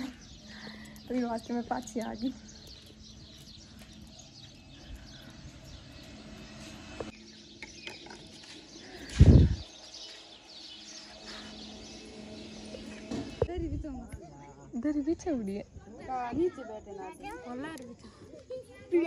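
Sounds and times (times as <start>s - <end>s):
small birds chirping: 0.0s - 19.0s
low rumble on microphone: 8.9s - 9.8s.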